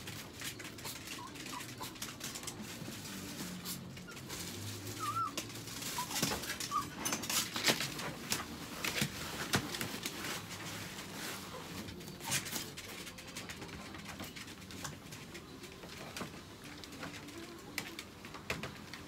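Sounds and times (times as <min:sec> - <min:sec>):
pee pad rustling and crinkling: 0:00.0 - 0:19.0
small dog whining: 0:00.8 - 0:02.5, 0:04.0 - 0:07.1.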